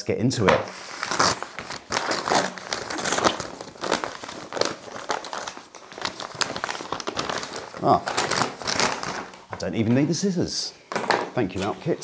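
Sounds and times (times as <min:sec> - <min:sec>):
paper bag crinkling: 0:00.7 - 0:09.8.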